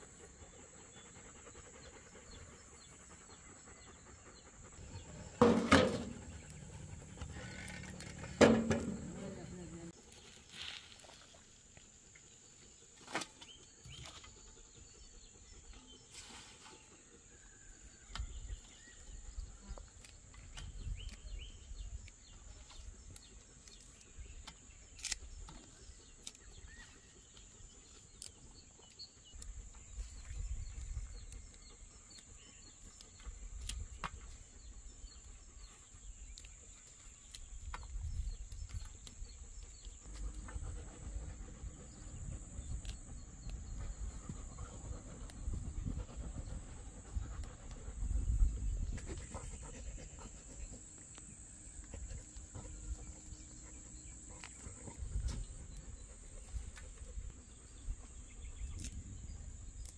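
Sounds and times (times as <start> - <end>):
wind rumble on microphone: 37.6 - 39.4, 43.6 - 49.9.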